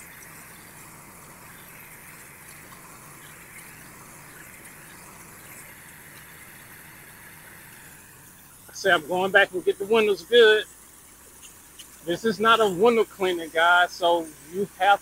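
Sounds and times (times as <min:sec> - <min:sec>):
pressure washer water spraying: 0:00.0 - 0:15.0.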